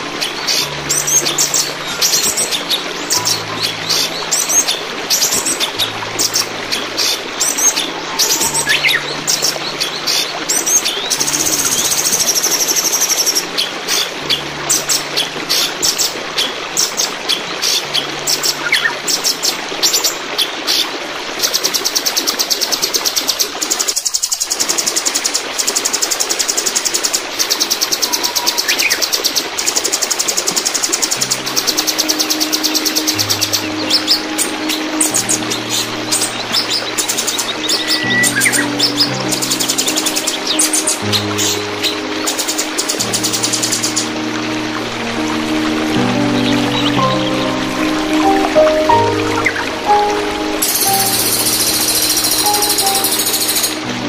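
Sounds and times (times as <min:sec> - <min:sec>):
running water rushing: 0:00.0 - 0:54.0
songbird singing stuttering phrases: 0:31.4 - 0:44.1, 0:46.2 - 0:53.8.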